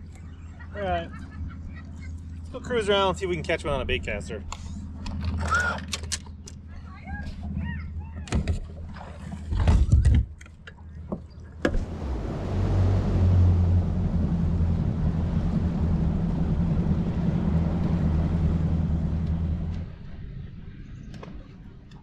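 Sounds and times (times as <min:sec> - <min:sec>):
outboard engine hum: 0:00.0 - 0:22.0
wind and water rushing: 0:11.7 - 0:20.0.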